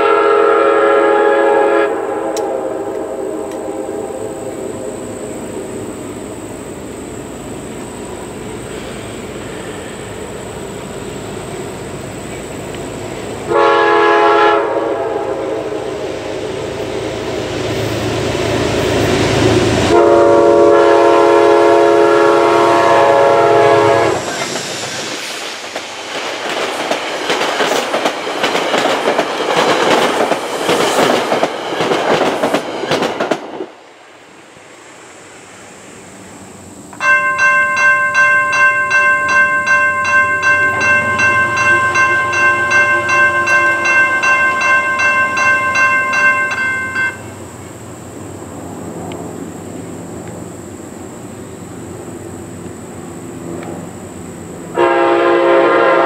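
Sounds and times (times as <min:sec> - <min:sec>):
locomotive horn blasts: 0:00.0 - 0:04.7, 0:13.5 - 0:15.8, 0:19.9 - 0:24.2, 0:54.7 - 0:56.0
train wheels clicking on rails: 0:04.5 - 0:14.1, 0:22.5 - 0:34.7, 0:35.3 - 0:54.9
crossing bells ringing: 0:37.0 - 0:47.6.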